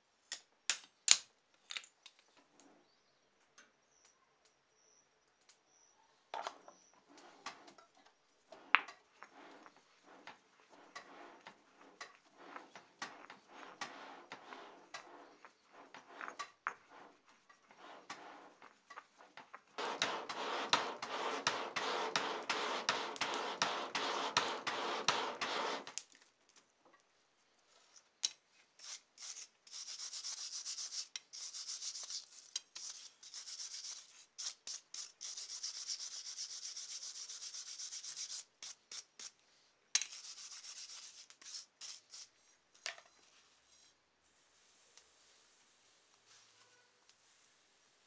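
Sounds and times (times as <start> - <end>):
wire brush scrubbing hot steel: 8.5 - 26.0, 28.8 - 39.4, 40.0 - 42.4
stone pestle grinding in mortar: 9.2 - 25.9.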